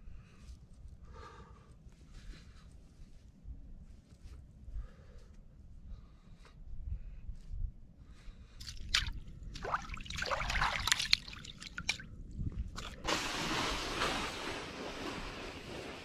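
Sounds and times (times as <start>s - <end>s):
water trickling and dripping: 8.6s - 12.1s.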